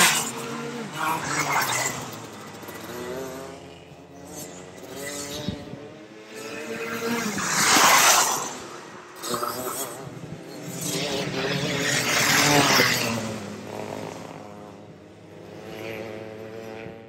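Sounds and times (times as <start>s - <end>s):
go-kart engines racing: 0.0s - 17.0s.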